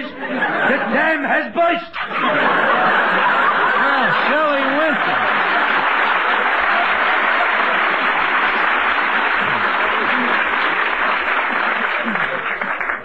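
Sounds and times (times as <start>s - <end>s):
audience applauding: 2.5s - 13.0s.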